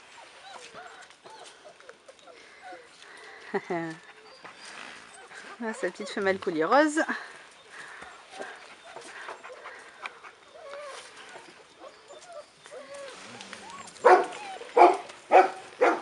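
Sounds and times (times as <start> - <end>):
dog whimpering: 8.1 - 15.1
dog barking: 14.0 - 16.0.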